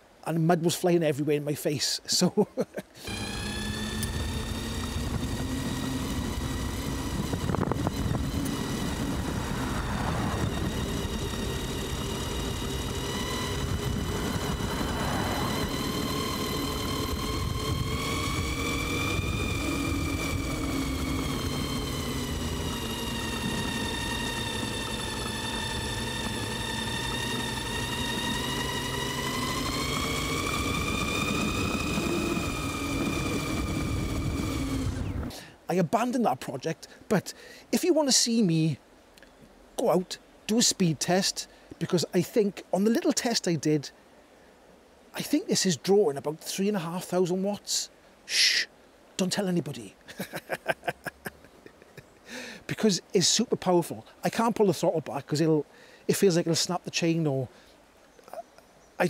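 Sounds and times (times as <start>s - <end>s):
electric motor whining: 2.9s - 35.4s
wind and tyre noise rumble: 3.1s - 35.4s.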